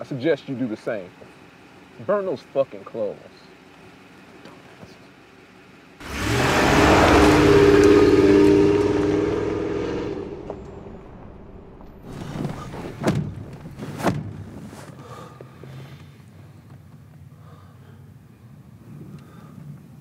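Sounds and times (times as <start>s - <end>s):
truck engine running hard: 6.0s - 11.0s
short knocks and rustles: 12.0s - 15.0s.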